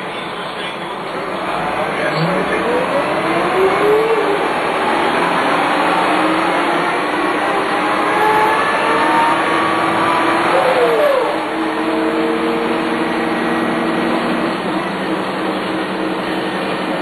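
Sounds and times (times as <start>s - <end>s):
bus diesel engine pulling away: 0.0s - 17.0s.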